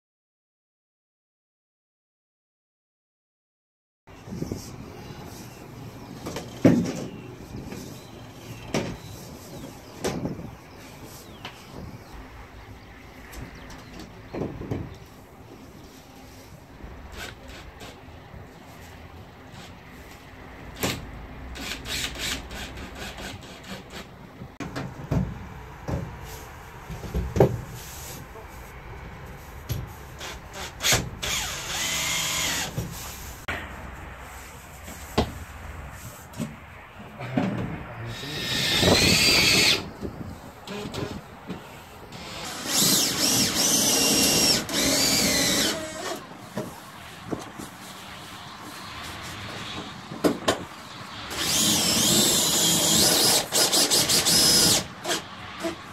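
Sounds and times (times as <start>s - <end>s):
rustling scrapes: 26.2s - 30.5s, 32.6s - 36.7s
cordless drill whining: 30.2s - 32.8s, 38.1s - 39.8s, 42.2s - 46.2s, 51.3s - 55.7s.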